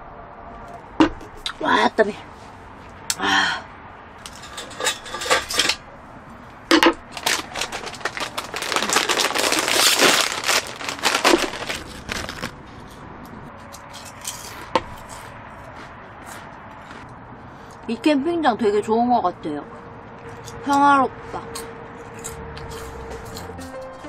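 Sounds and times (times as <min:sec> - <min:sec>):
plastic snack bag crinkling: 0:07.0 - 0:12.6.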